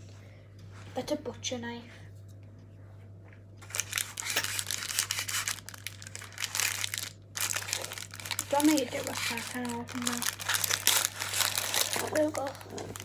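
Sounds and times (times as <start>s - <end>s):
plastic packaging crinkling: 3.6s - 13.0s.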